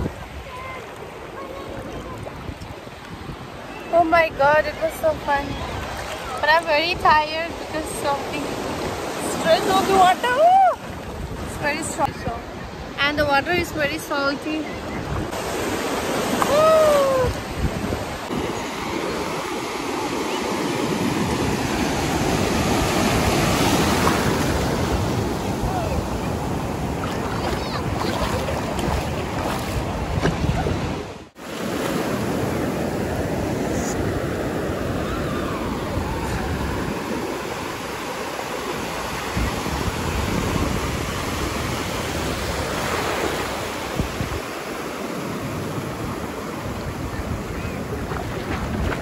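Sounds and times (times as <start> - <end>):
sea surf washing over sand: 14.9 - 49.0.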